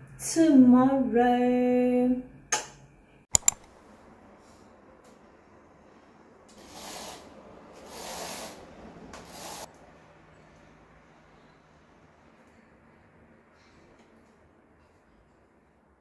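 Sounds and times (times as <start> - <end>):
sharp clicks: 3.3 - 3.7
roller blind rustling up: 6.6 - 9.7.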